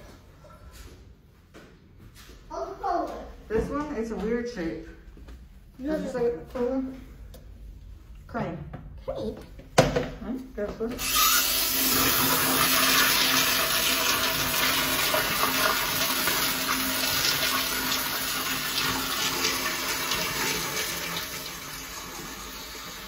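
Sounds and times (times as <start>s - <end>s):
toilet flushing: 11.0s - 23.0s.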